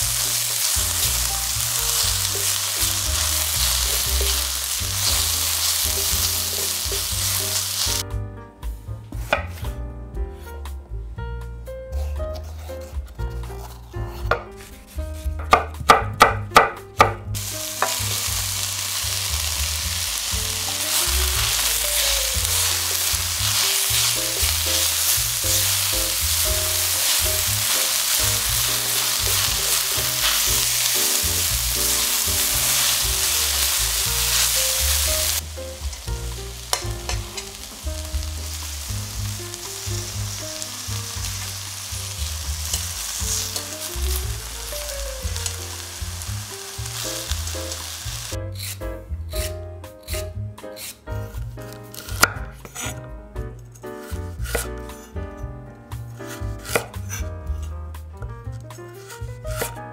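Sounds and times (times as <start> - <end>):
vegetables sizzling in oil: 0.0 - 8.0, 17.4 - 48.8.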